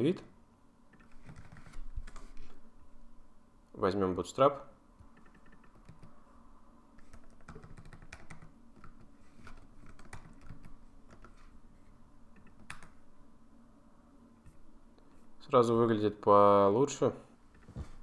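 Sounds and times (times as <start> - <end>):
faint steady hum: 0.0 - 18.0
keyboard keys clicking: 5.1 - 6.1, 7.0 - 11.4.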